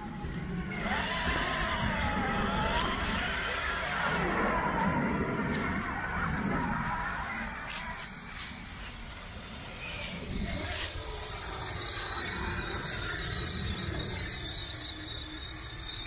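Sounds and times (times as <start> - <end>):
low rumble: 0.0 - 15.9
thin high whine: 0.0 - 16.0
toy car motor whining: 7.8 - 16.0.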